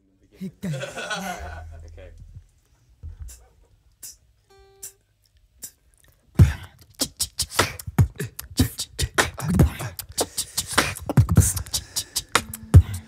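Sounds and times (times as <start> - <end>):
person beatboxing: 3.1 - 5.0, 5.6 - 5.8, 6.4 - 13.0.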